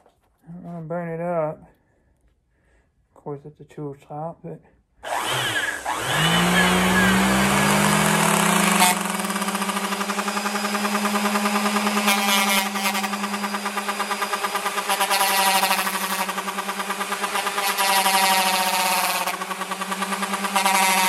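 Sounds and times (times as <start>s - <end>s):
electric sander motor running: 5.0s - 21.0s
wood being sanded: 5.1s - 21.0s.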